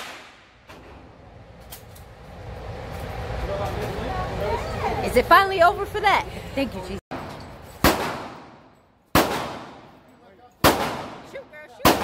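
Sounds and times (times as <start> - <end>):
handgun shots echoing: 7.8 - 9.9, 10.6 - 12.0.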